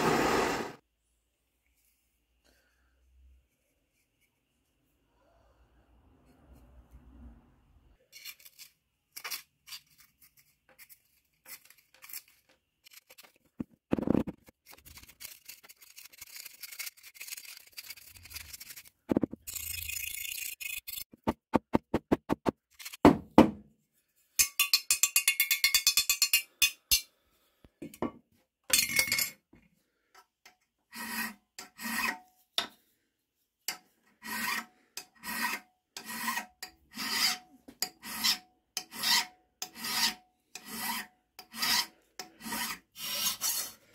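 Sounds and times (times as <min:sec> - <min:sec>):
hand file rasping on steel: 0:30.9 - 0:32.2, 0:34.2 - 0:43.9.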